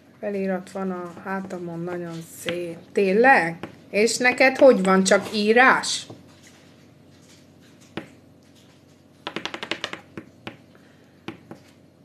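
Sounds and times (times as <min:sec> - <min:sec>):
fingernails tapping and clicking: 0:09.2 - 0:10.6.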